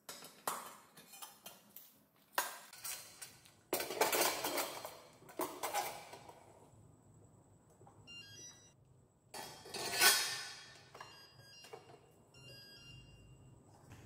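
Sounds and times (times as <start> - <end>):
metal scrape: 9.4 - 10.7.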